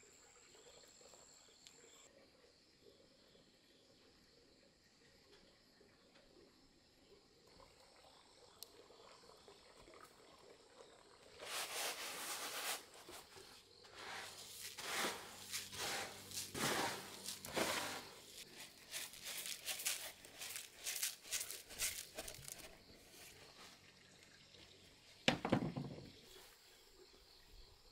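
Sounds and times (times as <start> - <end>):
rice pouring off tray: 11.4 - 23.6.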